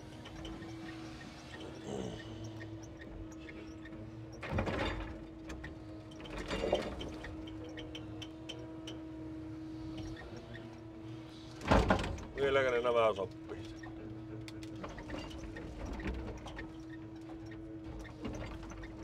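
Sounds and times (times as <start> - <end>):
hydraulic pump engine hum: 0.0 - 12.4.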